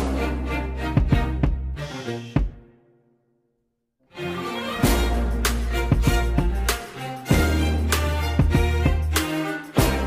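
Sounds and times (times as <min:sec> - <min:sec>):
low bass: 0:00.0 - 0:02.6, 0:04.8 - 0:09.2.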